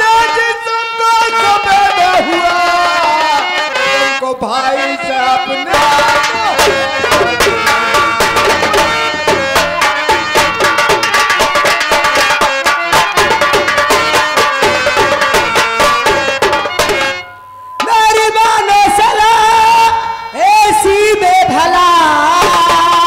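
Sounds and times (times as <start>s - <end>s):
person singing: 0.0s - 10.7s, 17.8s - 23.0s
sustained melody line: 0.6s - 23.0s
rapid hand drumming: 5.7s - 17.2s.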